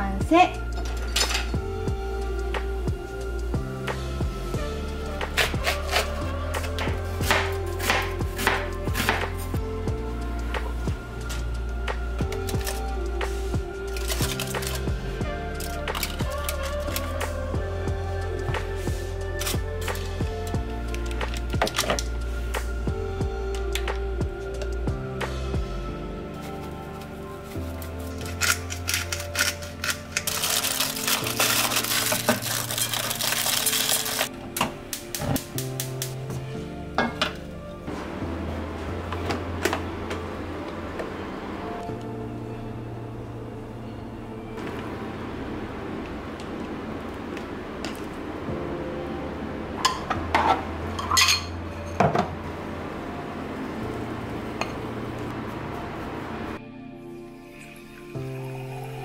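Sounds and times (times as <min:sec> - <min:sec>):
background music: 0:00.0 - 0:59.0
aluminium foil crinkling: 0:12.4 - 0:12.9, 0:13.8 - 0:14.9, 0:15.5 - 0:17.2, 0:20.9 - 0:22.1, 0:26.4 - 0:34.3.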